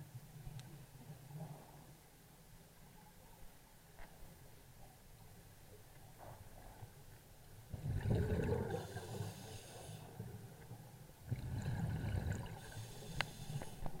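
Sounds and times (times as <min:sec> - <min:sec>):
diver exhaling bubbles: 0:07.8 - 0:09.3, 0:11.3 - 0:12.8.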